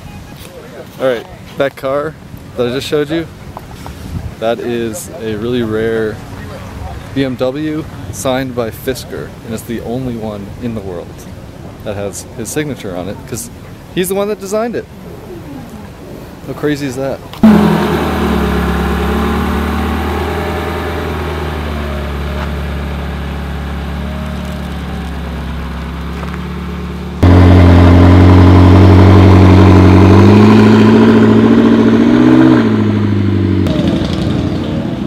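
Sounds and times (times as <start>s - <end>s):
sports car engine idling: 17.4s - 33.8s
car engine on light throttle: 17.4s - 35.0s.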